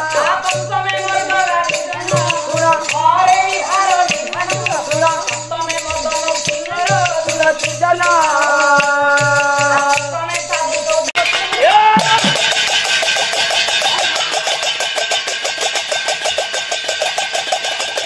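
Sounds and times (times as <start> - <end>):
sliding folk melody: 0.0 - 15.2
jingling rattle: 0.0 - 18.0
barrel drum thuds: 12.0 - 13.9.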